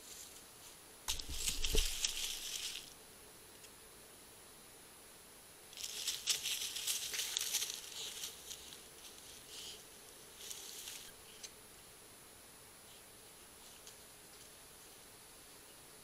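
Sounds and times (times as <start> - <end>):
dry leaves crackling and rustling: 0.0 - 3.0, 5.7 - 11.2.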